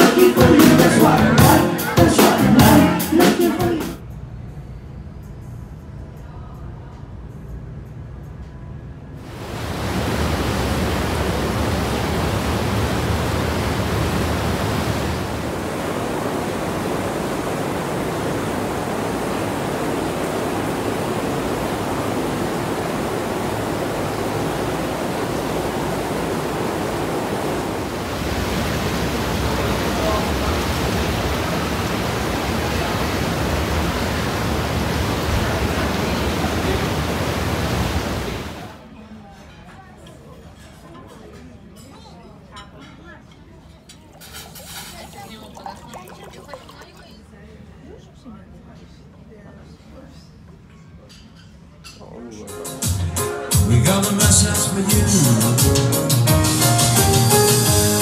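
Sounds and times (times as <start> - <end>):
pool jets churning water: 0.0 - 3.9, 9.2 - 38.9, 44.0 - 47.6, 54.1 - 58.0.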